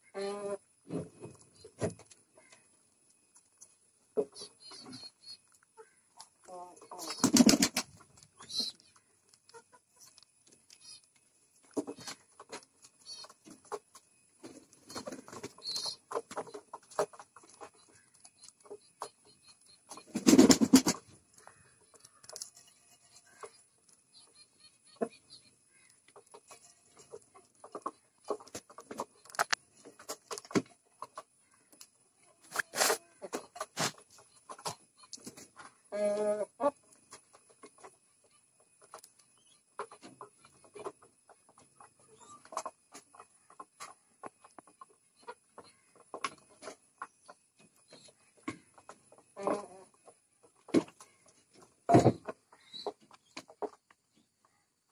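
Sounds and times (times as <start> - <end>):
pigeons pecking grain: 5.4 - 24.6.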